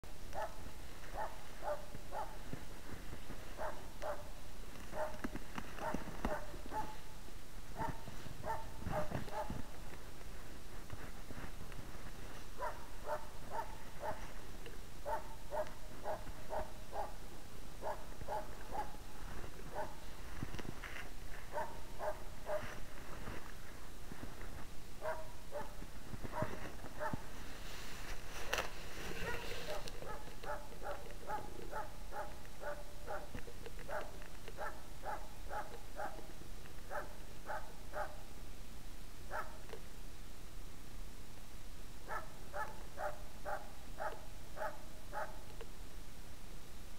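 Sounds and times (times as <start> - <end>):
dog barking: 0.3 - 2.4, 3.6 - 5.2, 5.8 - 7.1, 7.7 - 9.7, 12.6 - 14.4, 15.0 - 17.2, 17.8 - 19.0, 19.7 - 20.0, 21.5 - 22.8, 25.0 - 27.3, 28.5 - 36.3, 36.9 - 38.3, 39.3 - 39.6, 42.0 - 45.4.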